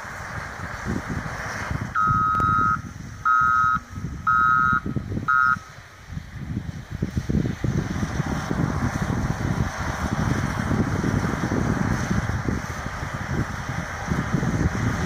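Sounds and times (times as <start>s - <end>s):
wind rumble on microphone: 0.0s - 15.0s
backup alarm beeping: 2.0s - 5.7s.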